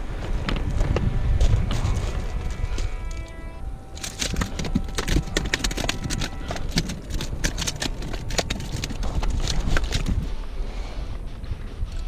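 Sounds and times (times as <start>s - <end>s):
fish slapping on rock: 4.0s - 10.3s.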